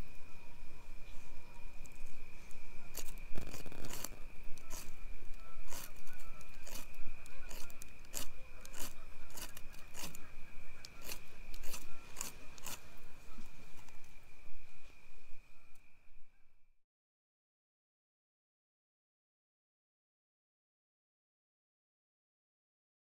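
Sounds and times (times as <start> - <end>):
short scraping strokes: 2.9 - 5.0, 10.9 - 13.0.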